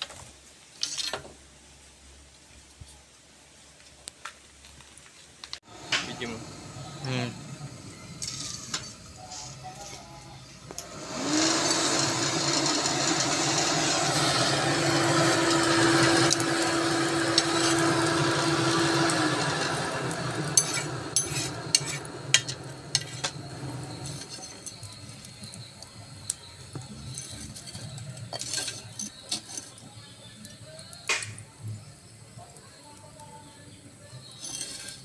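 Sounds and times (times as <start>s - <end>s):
electric air blower humming: 5.6s - 9.2s, 10.6s - 24.4s.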